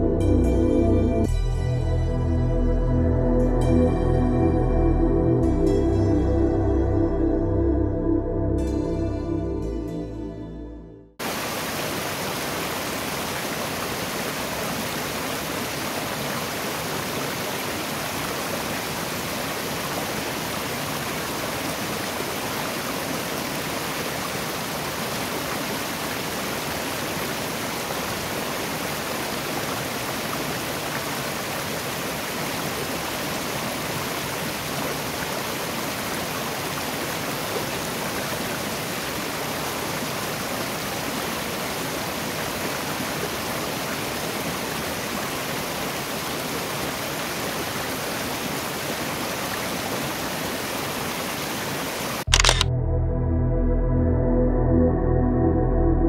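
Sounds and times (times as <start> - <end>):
water rushing over rocks: 11.2 - 52.3.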